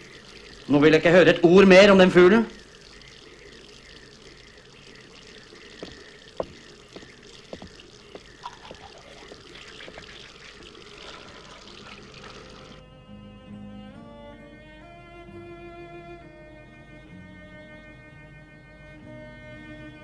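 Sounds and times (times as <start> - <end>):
water running from sink tap: 0.0 - 12.8.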